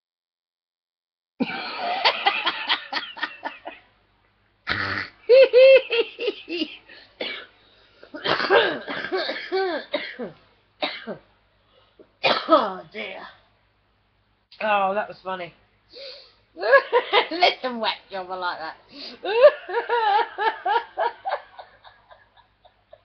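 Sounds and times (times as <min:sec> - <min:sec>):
woman laughing: 0:01.4 - 0:03.8, 0:05.3 - 0:07.0, 0:16.6 - 0:17.6, 0:19.2 - 0:23.0.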